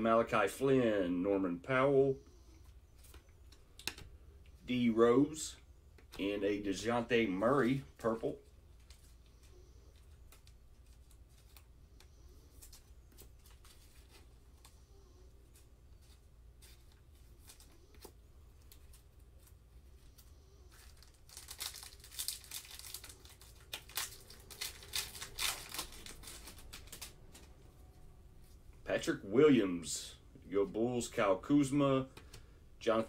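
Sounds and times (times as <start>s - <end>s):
foil wrapper tearing and crinkling: 20.6s - 27.5s.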